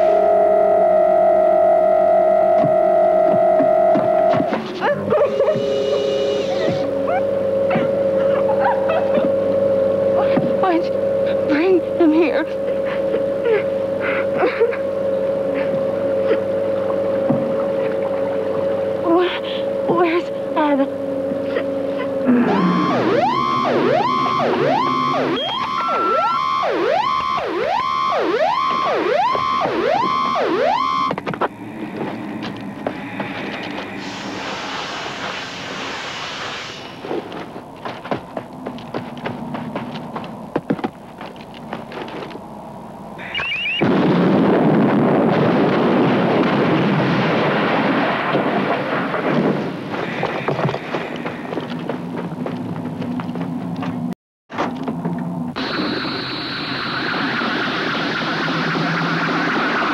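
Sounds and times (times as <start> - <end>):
electronic alarm siren whooping: 0.0 - 31.2, 43.2 - 44.0, 55.6 - 59.9
high electronic chirps: 21.4 - 31.1, 43.2 - 43.9, 55.6 - 59.9
loud rushing roar: 22.2 - 27.0
short electronic beeps: 22.3 - 26.2, 43.2 - 43.9.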